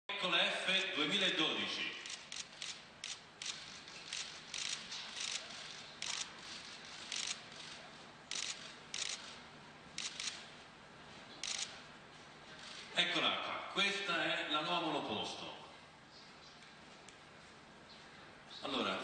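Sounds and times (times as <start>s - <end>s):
camera shutters clicking: 2.0s - 9.4s, 10.0s - 10.5s, 11.4s - 11.8s.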